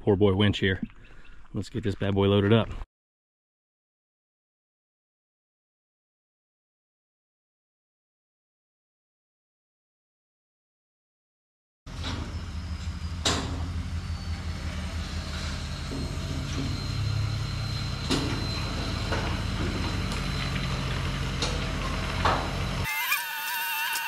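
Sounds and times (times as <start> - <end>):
pickup engine droning: 11.9 - 22.9.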